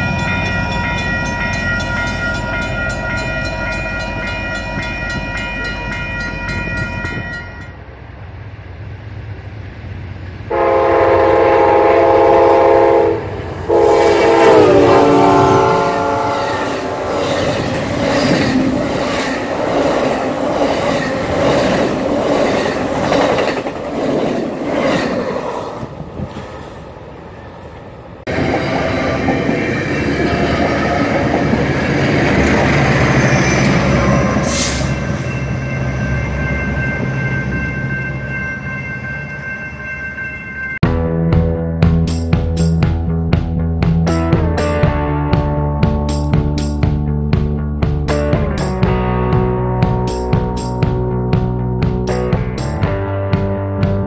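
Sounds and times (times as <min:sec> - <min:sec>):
rush of passing train cars: 0:00.0 - 0:41.0
train horn blasts: 0:10.5 - 0:17.1
steady tone: 0:10.9 - 0:23.0.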